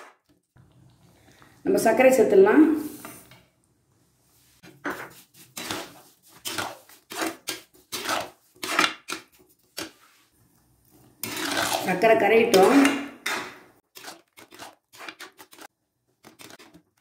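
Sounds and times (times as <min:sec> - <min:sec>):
metal ladle scraping a pan: 0:04.8 - 0:10.2, 0:10.9 - 0:15.7.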